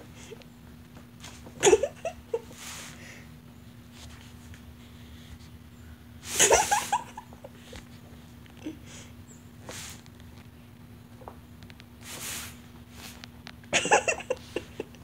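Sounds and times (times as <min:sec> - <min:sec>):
person snickering: 0:01.6 - 0:02.9, 0:06.3 - 0:07.8, 0:13.7 - 0:15.0.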